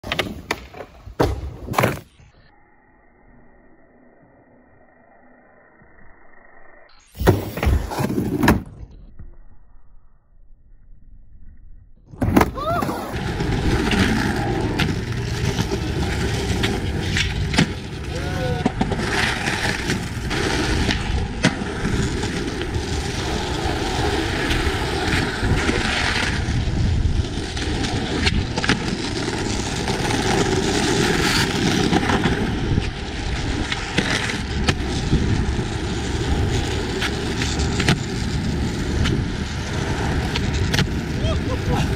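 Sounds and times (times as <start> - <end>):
skateboard wheels rolling on pavement: 0.0 - 2.2, 7.1 - 9.0, 12.1 - 41.9
skateboard wooden clacks: 36.4 - 41.1.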